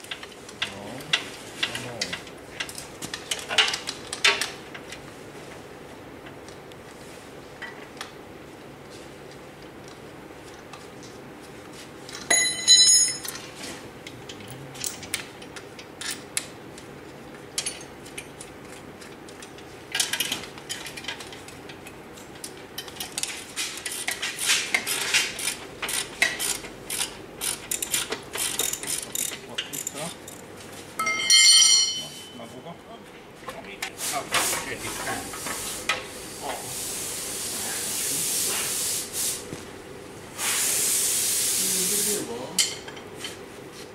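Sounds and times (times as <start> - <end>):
ringing metallic clang: 12.3 - 13.3, 31.0 - 32.5
metal parts clinking and rattling: 24.9 - 30.4.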